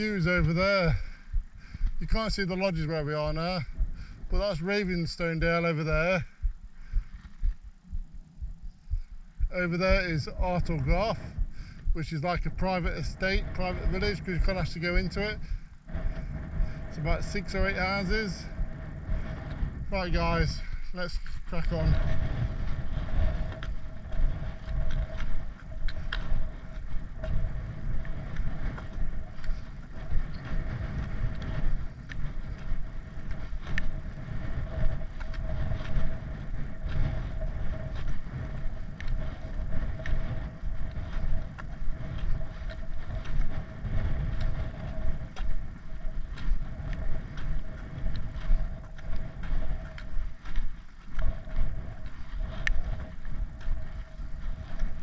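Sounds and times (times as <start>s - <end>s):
footsteps on tarmac: 0.0s - 55.0s
wind rumbling on microphone: 0.0s - 55.0s.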